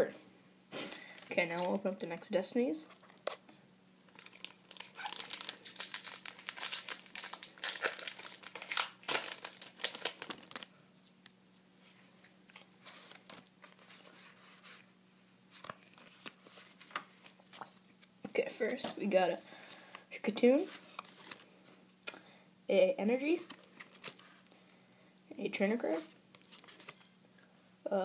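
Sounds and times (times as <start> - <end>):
foil pack crinkling: 4.1 - 10.7, 12.5 - 14.7, 26.3 - 27.0
cards rustling and clicking: 15.5 - 17.8, 26.4 - 27.1.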